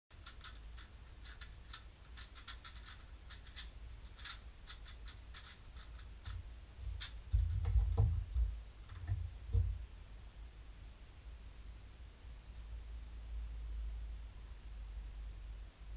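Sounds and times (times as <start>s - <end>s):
plastic puzzle cube clicking: 0.2s - 6.4s
dull thumps: 6.3s - 9.9s.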